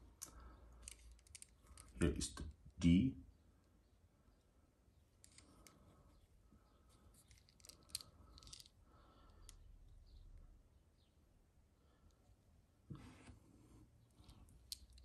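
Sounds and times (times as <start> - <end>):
revolver handling clicks and rubs: 0.2 - 2.0, 5.2 - 6.2, 6.9 - 8.8.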